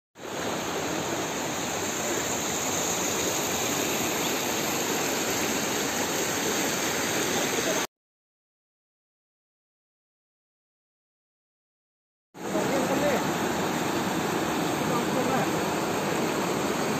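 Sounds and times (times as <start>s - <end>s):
river rushing over rocks: 0.2s - 7.8s, 12.4s - 16.9s.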